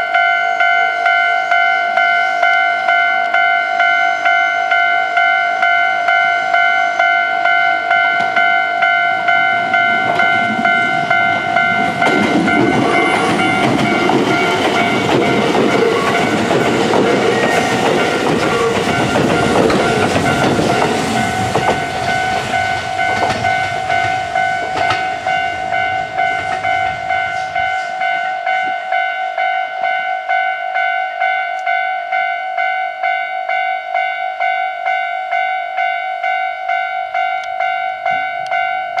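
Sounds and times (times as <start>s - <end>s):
level crossing bell ringing: 0.0s - 39.0s
train rumbling past: 5.7s - 29.4s.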